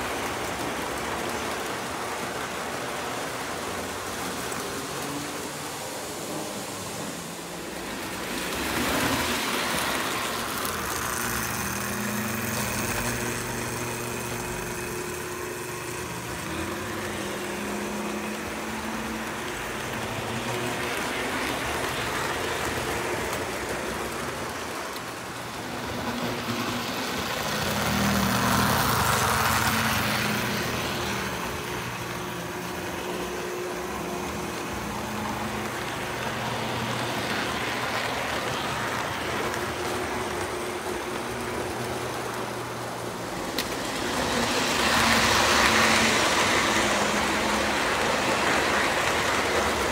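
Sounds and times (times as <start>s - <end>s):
model train electric hum: 0.0s - 49.9s
wheels rumbling on rails: 0.0s - 49.9s.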